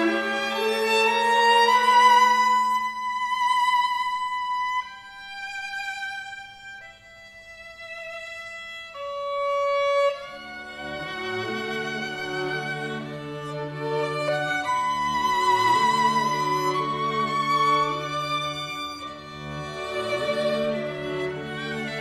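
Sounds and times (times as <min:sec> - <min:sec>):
violin long slow notes: 0:00.0 - 0:22.0
lower strings: 0:10.0 - 0:22.0.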